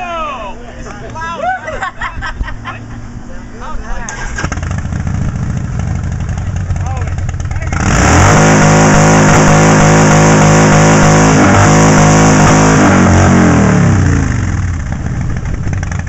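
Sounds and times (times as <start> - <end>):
motorcycle engine revving: 4.1 - 16.0.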